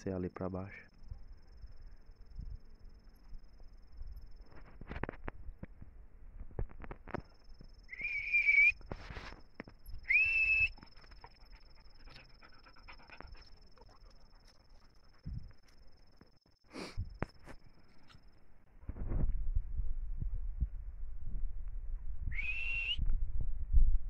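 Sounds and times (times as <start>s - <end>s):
short high whistle: 7.9s - 8.9s, 10.0s - 10.8s, 22.3s - 23.0s
footsteps scuffing on dirt: 8.8s - 9.9s.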